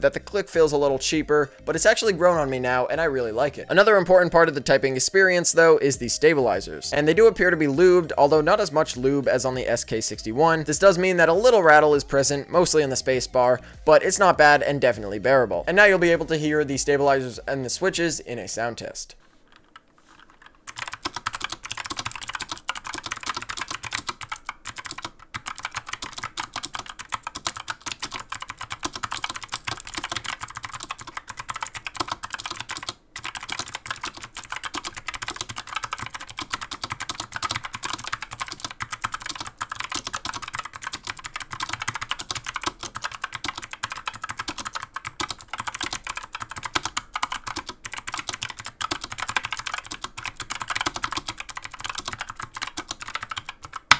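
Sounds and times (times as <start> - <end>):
mechanical keyboard typing clicks: 19.5 - 53.9.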